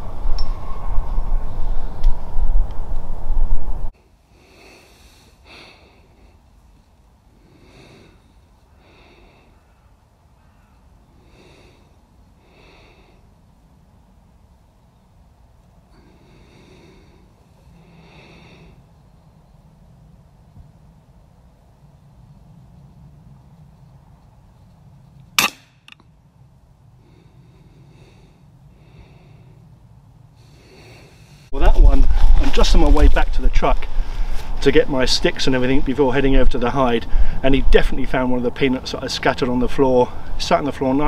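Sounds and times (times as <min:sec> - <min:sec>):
low rumble: 0:00.0 - 0:03.9
person breathing: 0:04.0 - 0:10.0, 0:10.7 - 0:13.4, 0:15.9 - 0:19.0, 0:26.9 - 0:31.6, 0:33.8 - 0:34.6, 0:37.0 - 0:37.4
air rifle shot: 0:25.4 - 0:26.0.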